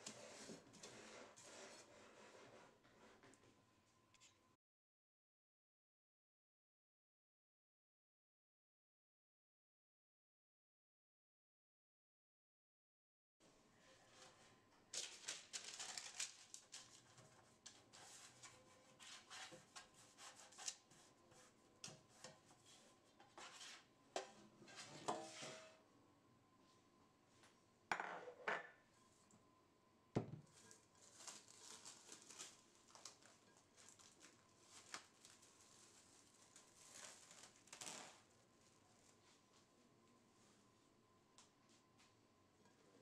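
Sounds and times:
cling film rustling: 0:14.9 - 0:17.2.

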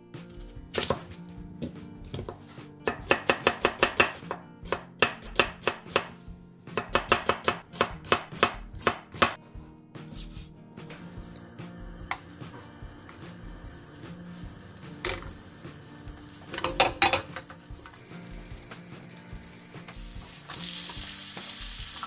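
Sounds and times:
knife chopping on cutting board: 0:00.7 - 0:09.4.

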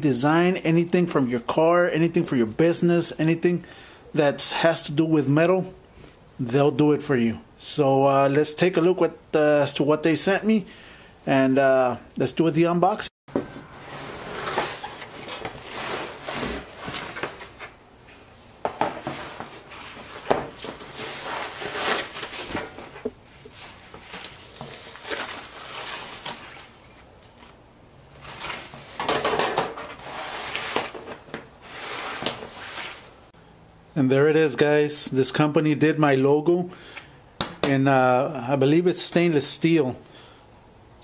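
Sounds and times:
cardboard and plastic rustling: 0:13.3 - 0:33.2.

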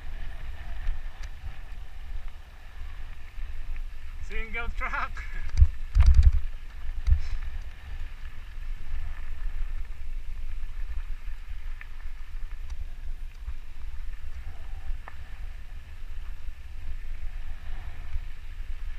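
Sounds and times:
wind rumble on microphone: 0:00.0 - 0:18.9
bike clicks: 0:00.6 - 0:02.4, 0:05.2 - 0:08.8, 0:11.3 - 0:16.6.

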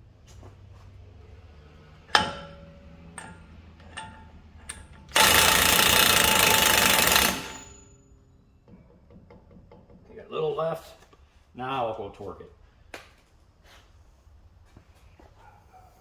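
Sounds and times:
impact wrench hammering nut: 0:02.1 - 0:07.9.

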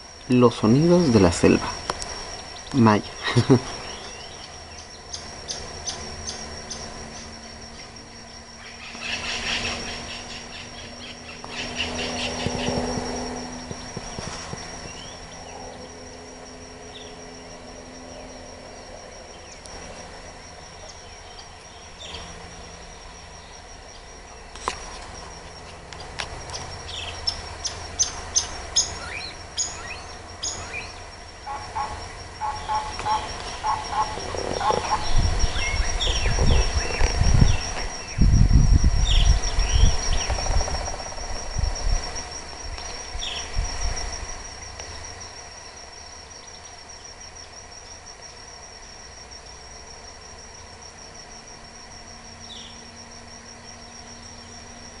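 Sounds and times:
birds chirping: 0:00.0 - 0:18.7, 0:19.3 - 0:38.3, 0:39.0 - 0:41.4
high-pitched insect drone: 0:00.0 - 0:55.0.

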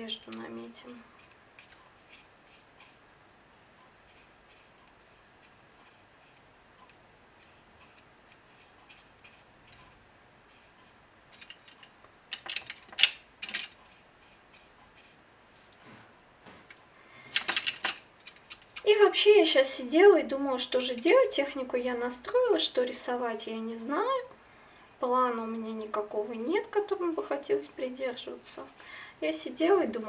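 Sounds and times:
brush stroking across paper: 0:00.8 - 0:03.1, 0:03.9 - 0:06.5, 0:07.3 - 0:11.5, 0:13.8 - 0:16.0.

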